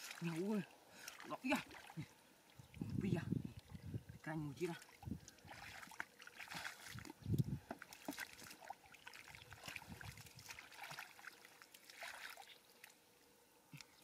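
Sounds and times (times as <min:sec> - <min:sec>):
hands sloshing in muddy water: 0:00.0 - 0:02.9, 0:04.8 - 0:12.9
low splash: 0:04.8 - 0:07.1.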